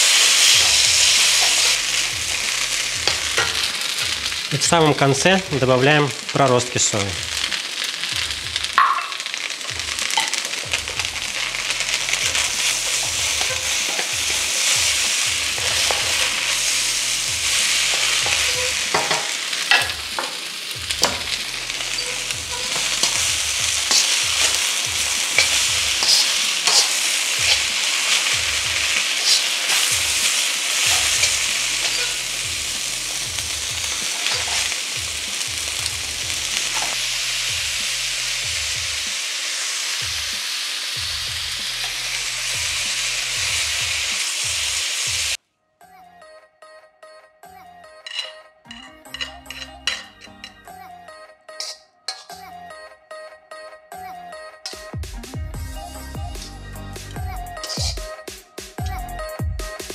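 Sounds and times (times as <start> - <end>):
food sizzling in a wok: 0.0 - 45.4, 48.0 - 50.6, 51.6 - 52.4, 56.0 - 58.1
spatula clinking against wok: 21.0 - 28.2, 29.2 - 32.3, 48.0 - 50.6, 51.6 - 52.4.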